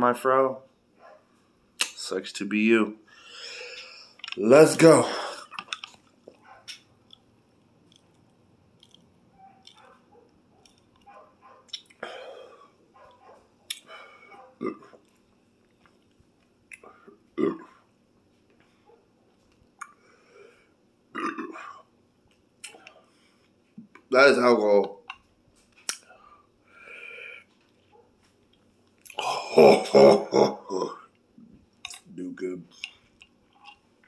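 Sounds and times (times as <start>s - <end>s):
breathing: 3.1s - 4.2s, 12.0s - 12.8s, 13.8s - 14.6s, 19.9s - 20.8s, 23.0s - 23.6s, 26.0s - 27.6s
lip smacks: 5.4s - 10.0s, 10.6s - 12.1s, 13.1s - 17.1s, 22.6s - 23.1s, 25.1s - 26.1s, 28.5s - 29.2s
throaty sounds: 13.7s - 15.1s, 16.7s - 17.8s, 21.1s - 21.9s, 29.0s - 33.9s
swallowing: 13.7s - 15.2s.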